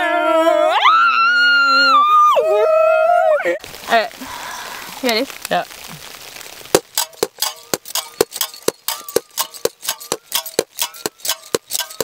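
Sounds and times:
metal hardware clinking on bottle: 7.0 - 12.0.

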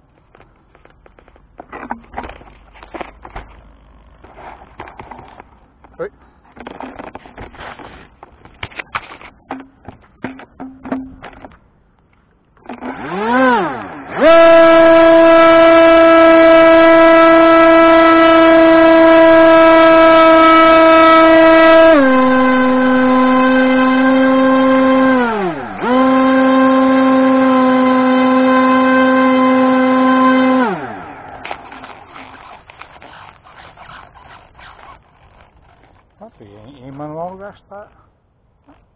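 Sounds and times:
small electric motor whining: 12.6 - 36.2.

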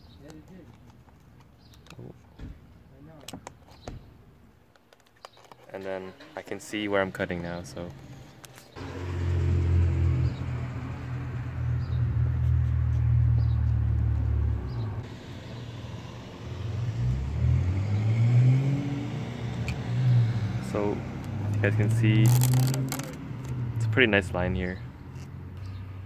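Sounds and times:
car engine running and revving: 7.2 - 24.1.

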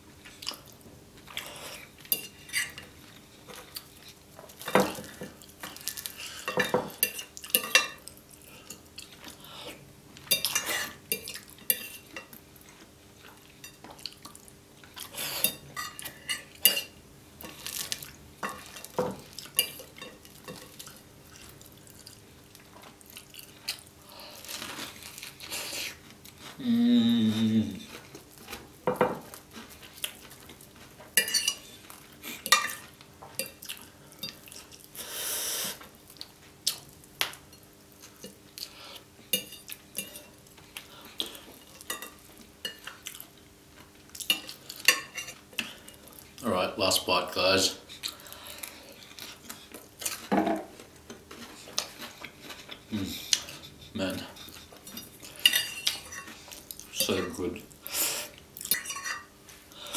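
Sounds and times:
person humming: 26.6 - 27.9, 52.9 - 53.2.

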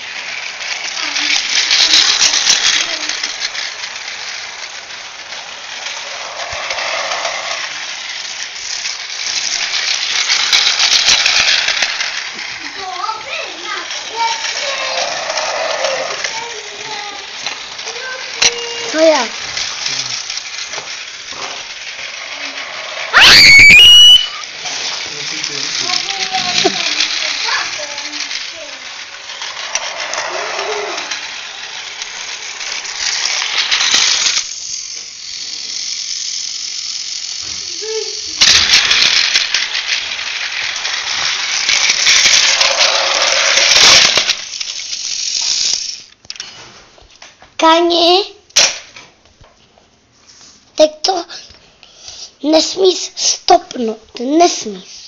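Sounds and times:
toy train motor rattling buzz: 0.0 - 46.6, 47.6 - 49.0, 50.7 - 55.0
distant children's voices: 0.8 - 3.5, 12.5 - 20.2, 25.1 - 31.3, 37.4 - 38.4.

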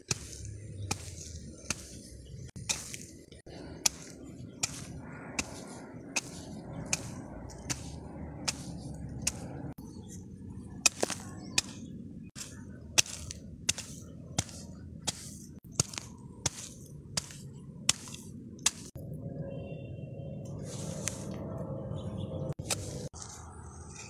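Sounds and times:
hoe chopping stony soil: 0.0 - 9.8, 10.6 - 19.0, 22.6 - 23.2.

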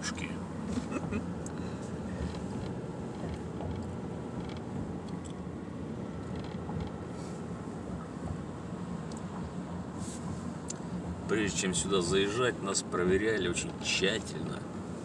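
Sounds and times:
car road and engine noise: 0.0 - 15.0
faint light ticks: 9.0 - 9.6, 10.3 - 10.9.

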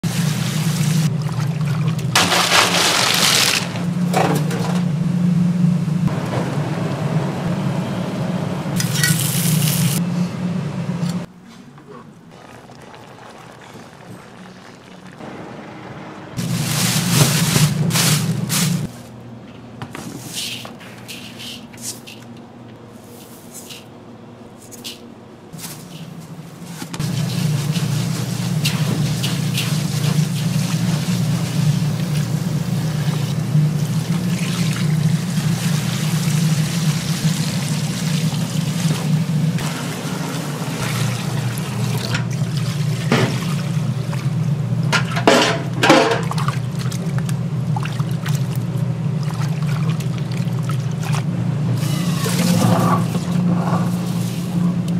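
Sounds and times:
water running: 12.2 - 15.3.

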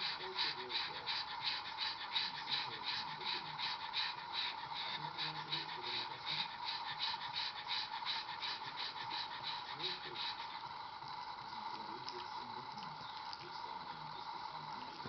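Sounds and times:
dog panting: 0.0 - 15.0.

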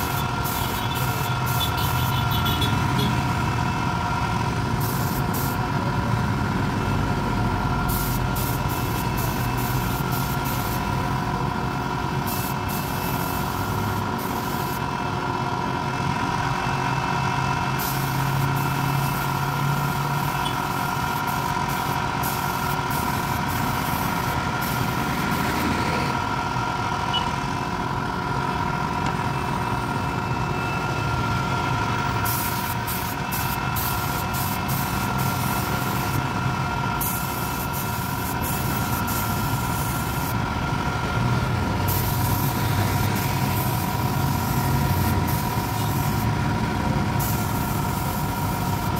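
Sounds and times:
spray gun air hiss: 0.0 - 3.1, 4.7 - 5.8, 7.7 - 15.0, 17.7 - 25.6, 32.2 - 40.4, 41.8 - 48.9
air compressor humming: 0.0 - 48.9.

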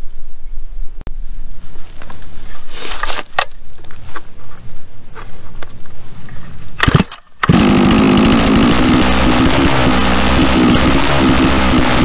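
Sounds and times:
chainsaw engine revving high: 6.8 - 12.0.

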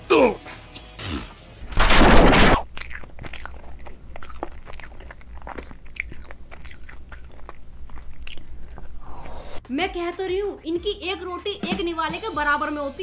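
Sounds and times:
mouth clicks and crunches: 1.7 - 9.6
person chewing and biting: 2.2 - 9.6.

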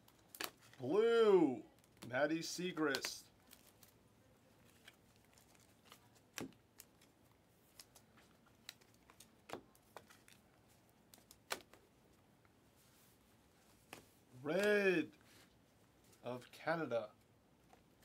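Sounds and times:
trading cards clicking in hands: 2.9 - 3.2.

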